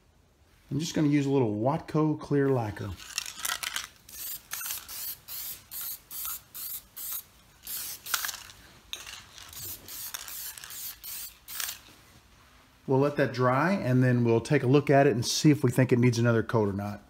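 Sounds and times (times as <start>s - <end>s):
aerosol can spraying bursts: 4.1s - 8.5s, 9.5s - 11.8s.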